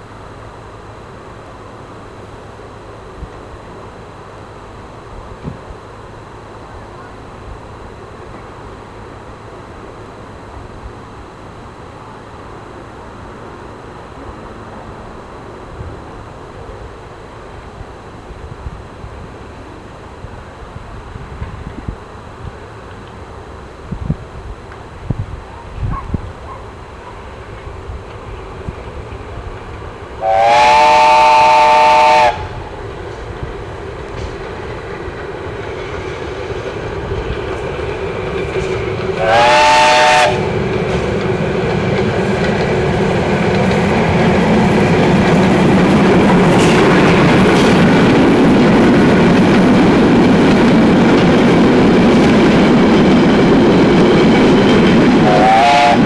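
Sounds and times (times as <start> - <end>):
steam whistle blast: 30.2 - 32.6, 39.2 - 40.4, 55.2 - 56.0
wheels on rails: 32.3 - 56.0.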